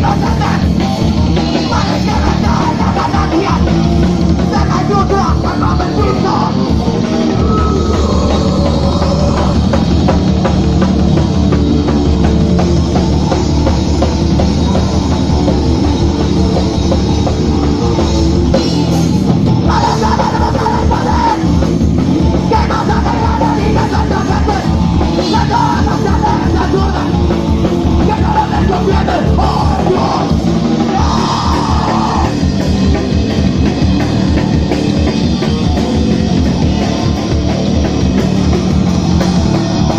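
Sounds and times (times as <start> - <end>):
bass guitar: 0.0 - 39.9
drum kit: 0.0 - 39.9
electric guitar: 0.0 - 39.9
shouted vocals: 1.4 - 10.2, 19.6 - 21.7, 22.3 - 32.6.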